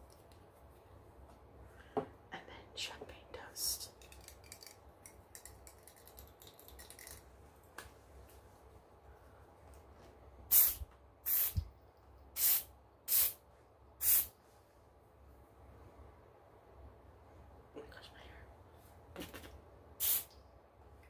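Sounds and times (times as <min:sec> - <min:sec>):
spray bottle spritzing: 0:10.5 - 0:11.6, 0:12.4 - 0:13.4, 0:14.0 - 0:14.3, 0:19.2 - 0:20.3.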